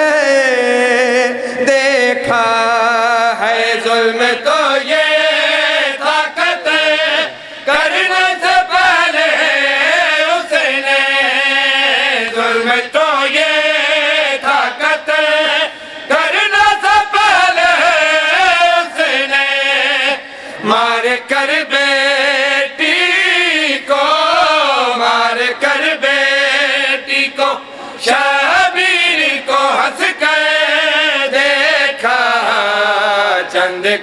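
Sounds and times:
man chanting a lament: 0:00.0 - 0:34.0.

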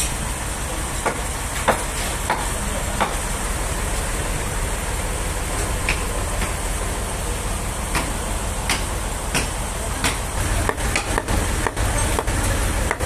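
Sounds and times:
sawmill machinery running: 0:00.0 - 0:13.0
sharp knocks: 0:07.9 - 0:12.3.

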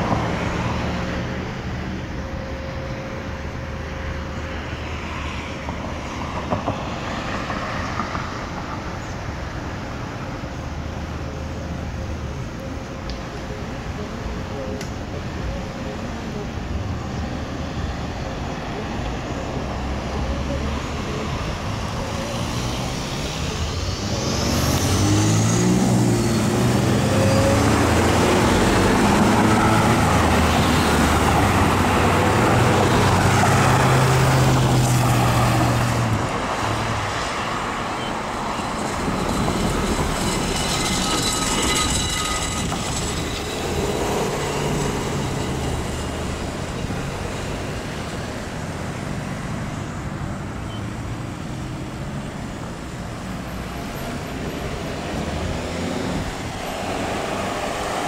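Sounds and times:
car and tyre noise: 0:00.0 - 0:58.0
heavy vehicle engine pulling away: 0:19.8 - 0:49.8.

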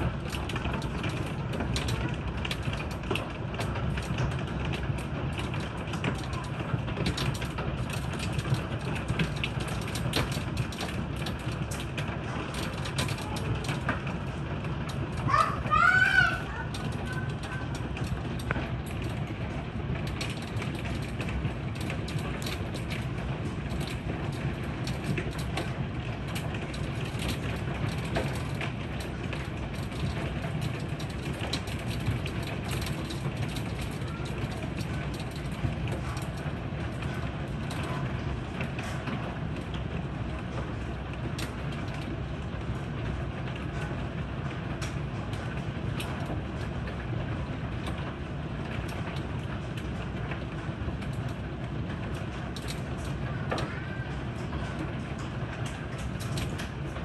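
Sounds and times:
hailstones ticking on boards: 0:00.0 - 0:57.0
heavy rain on wooden deck: 0:00.0 - 0:57.0.

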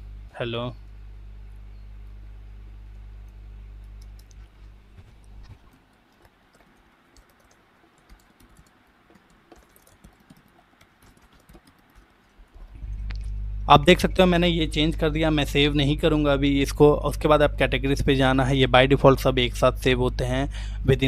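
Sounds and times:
low hum: 0:00.0 - 0:05.8, 0:12.4 - 0:21.0
keyboard typing clicks: 0:03.2 - 0:04.5, 0:05.7 - 0:13.2.

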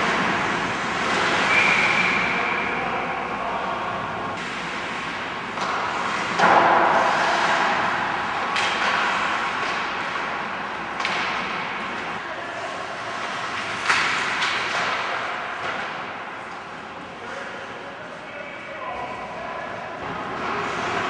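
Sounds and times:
puck and sticks knocking boards: 0:05.5 - 0:12.1, 0:13.2 - 0:16.7.

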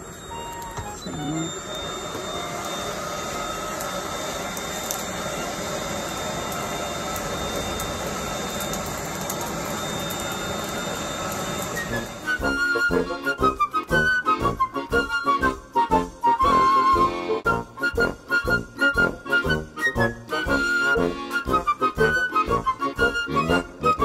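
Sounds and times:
music: 0:00.0 - 0:01.6, 0:11.8 - 0:24.0
electric blower running: 0:00.0 - 0:15.4.

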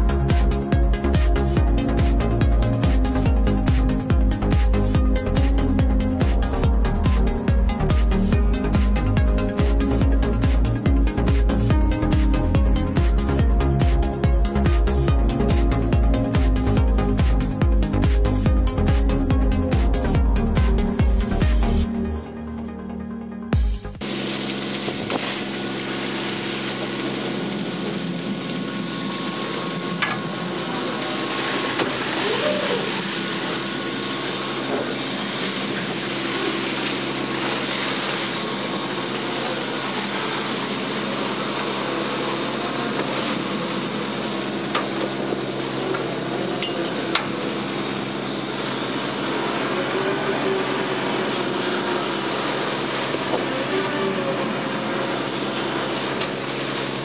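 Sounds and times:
boat engine running: 0:00.0 - 0:57.0
water churning in wake: 0:24.0 - 0:57.0.

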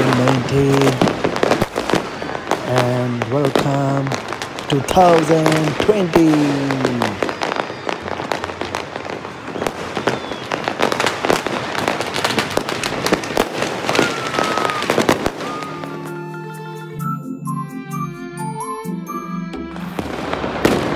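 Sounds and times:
fireworks banging and crackling: 0:00.0 - 0:17.2, 0:19.8 - 0:20.9
falling firework whistles: 0:06.7 - 0:17.2
music: 0:15.2 - 0:20.9.

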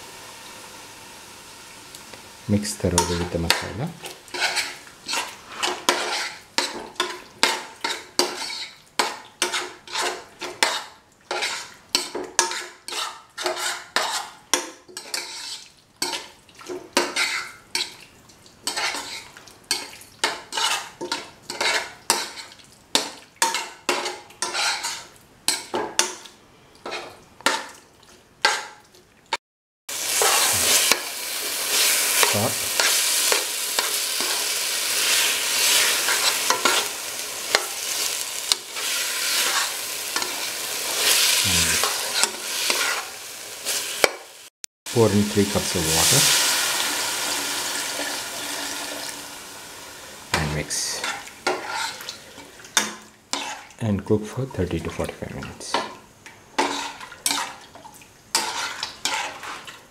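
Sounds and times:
food sizzling in a pan: 0:00.0 - 0:27.7, 0:29.9 - 0:55.0, 0:55.7 - 0:59.9
spoon scraping a pan: 0:02.8 - 0:18.0, 0:18.6 - 0:27.7, 0:28.4 - 0:28.8, 0:30.0 - 0:44.3, 0:45.4 - 0:47.1, 0:50.3 - 0:53.8, 0:55.7 - 0:57.7, 0:58.3 - 0:59.9.

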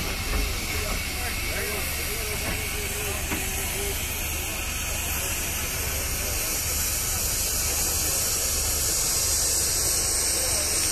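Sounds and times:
steam hissing: 0:00.0 - 0:10.9.

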